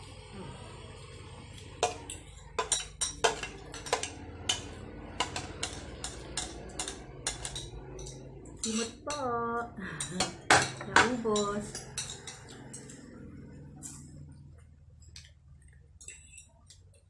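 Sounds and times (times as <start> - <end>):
low steady hum: 0.0 - 17.0
cutlery clinking on plates: 1.8 - 9.2, 10.0 - 13.1.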